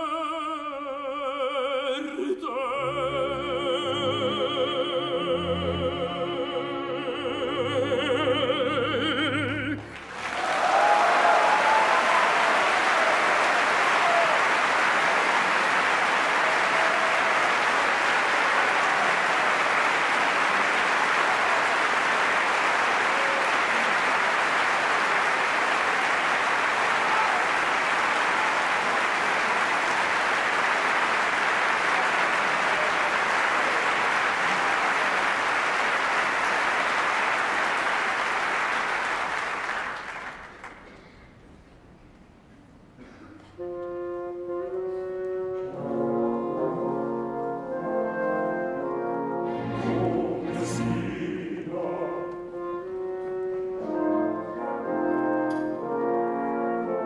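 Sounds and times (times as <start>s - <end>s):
audience applauding: 9.8s - 41.2s.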